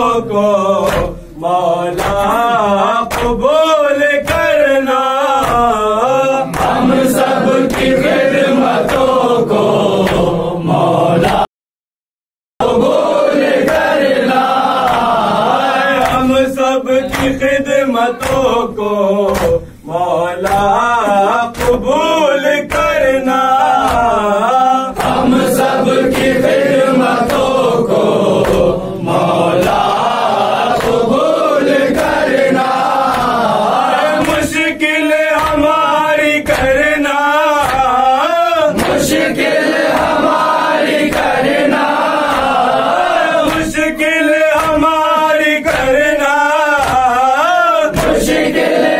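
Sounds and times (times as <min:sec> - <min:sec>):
men chanting in unison: 0:00.0 - 0:11.5, 0:12.6 - 0:48.9
hands slapping chests: 0:00.8 - 0:01.2, 0:02.0 - 0:02.5, 0:03.1 - 0:03.5, 0:04.2 - 0:04.7, 0:05.4 - 0:05.8, 0:06.5 - 0:09.3, 0:09.9 - 0:10.5, 0:13.4 - 0:16.4, 0:17.1 - 0:17.5, 0:19.3 - 0:19.7, 0:21.5 - 0:22.0, 0:23.8 - 0:24.3, 0:25.0 - 0:28.8, 0:29.5 - 0:34.6, 0:35.3 - 0:38.0, 0:38.7 - 0:43.9, 0:44.5 - 0:46.2, 0:46.8 - 0:48.9.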